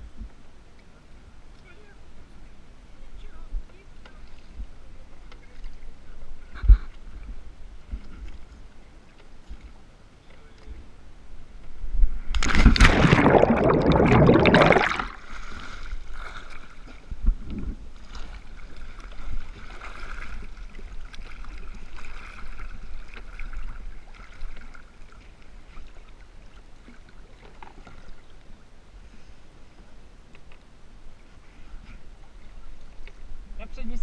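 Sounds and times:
water lapping: 11.7 - 17.2, 17.8 - 30.0
water rushing and splashing: 12.3 - 17.2.

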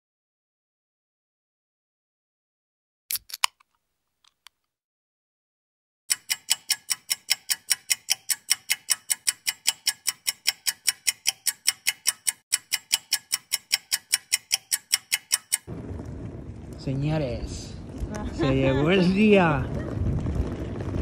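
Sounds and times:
rapid regular ticking: 6.1 - 15.7.

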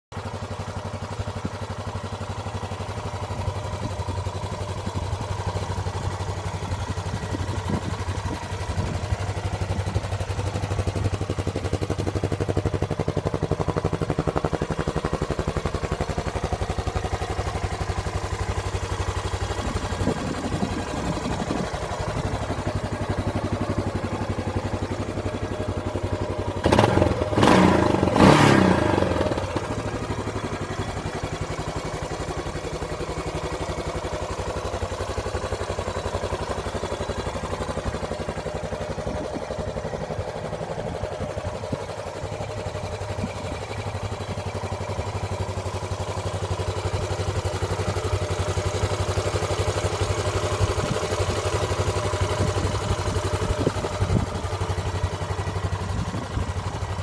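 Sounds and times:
motorcycle engine idling: 0.1 - 57.0
engine throttle blips: 19.5 - 31.6.

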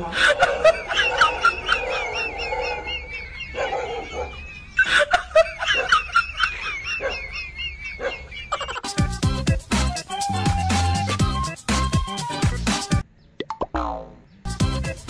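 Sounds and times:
person laughing: 0.0 - 11.2
high wavering chirping: 0.9 - 5.1.

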